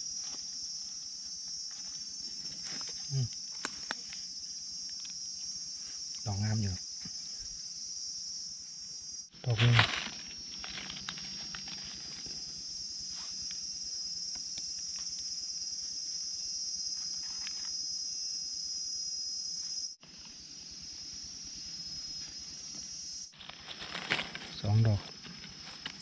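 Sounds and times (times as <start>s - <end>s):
insects high-pitched drone: 0.0s - 26.0s
footsteps in leaf litter: 9.5s - 12.4s, 23.4s - 24.8s.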